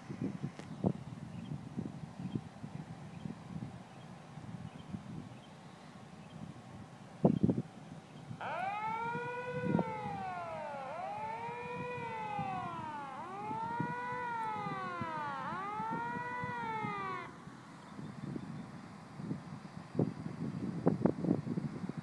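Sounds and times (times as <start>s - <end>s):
siren wailing: 8.4s - 17.4s.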